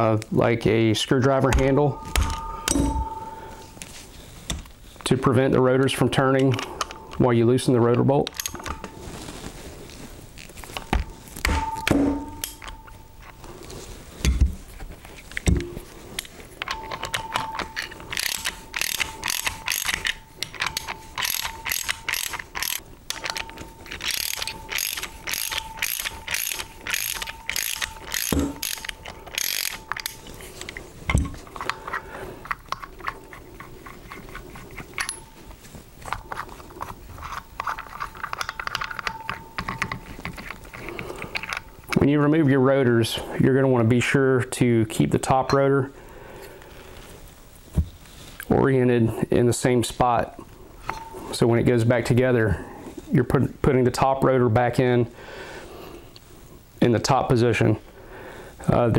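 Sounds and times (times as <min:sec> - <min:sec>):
ratchet wrench clicking: 0:17.8 - 0:30.2.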